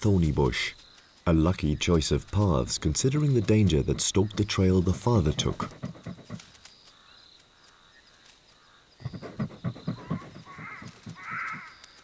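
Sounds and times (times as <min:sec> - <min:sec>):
porcupine grunting and snuffling: 0:03.6 - 0:06.5, 0:09.0 - 0:11.7
harsh rasping animal call: 0:04.9 - 0:06.4, 0:09.0 - 0:11.7.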